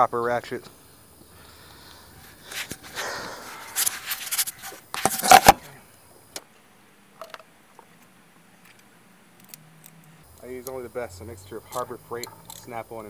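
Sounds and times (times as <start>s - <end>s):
camera handling noise: 3.6s - 5.6s.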